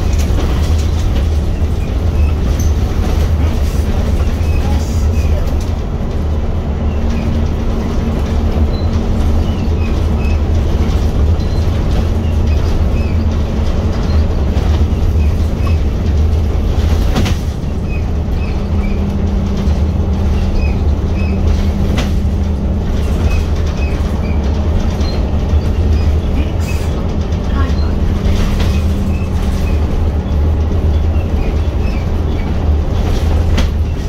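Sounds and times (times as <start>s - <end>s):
bus diesel engine droning: 0.0s - 34.0s
bus body knocks: 7.4s - 34.0s.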